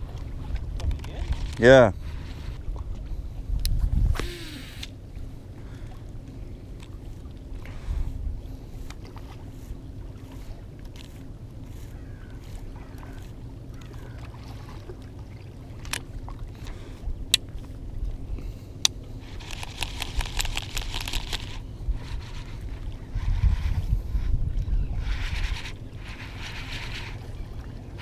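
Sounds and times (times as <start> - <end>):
water at rocky shoreline: 0.0 - 28.0
wind: 0.0 - 28.0
sharp clicks: 18.8 - 21.6
fishing reel ticking: 19.2 - 23.4, 25.1 - 27.2.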